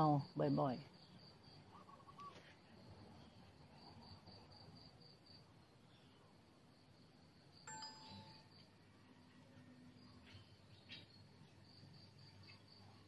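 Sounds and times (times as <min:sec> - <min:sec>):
insect chirping trill: 0:00.0 - 0:09.1.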